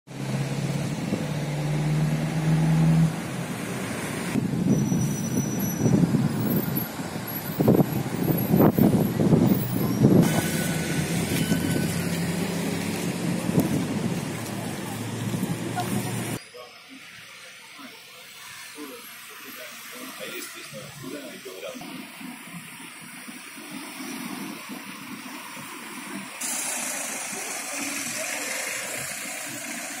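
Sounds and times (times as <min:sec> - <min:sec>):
large vehicle engine humming: 0:00.1 - 0:16.4, 0:19.7 - 0:30.0
traffic rumble: 0:00.1 - 0:30.0
bright hiss: 0:17.0 - 0:30.0.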